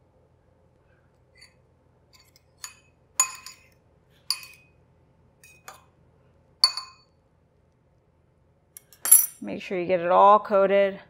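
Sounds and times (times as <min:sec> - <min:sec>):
metal fork tapping a bowl: 0:02.6 - 0:03.6, 0:04.3 - 0:04.6, 0:06.6 - 0:07.0.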